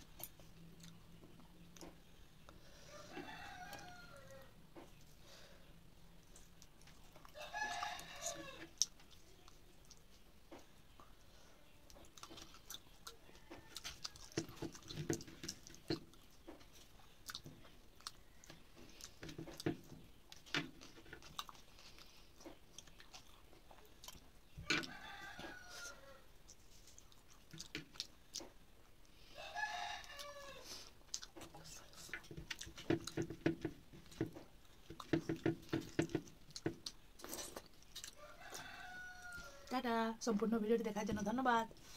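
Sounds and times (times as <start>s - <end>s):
rooster crowing: 2.9s - 4.6s, 7.3s - 8.7s, 24.6s - 26.3s, 29.3s - 30.7s, 38.2s - 39.8s
chewing and lip smacks: 8.7s - 11.2s, 11.9s - 24.3s, 26.4s - 29.2s, 31.0s - 33.3s, 36.1s - 38.6s.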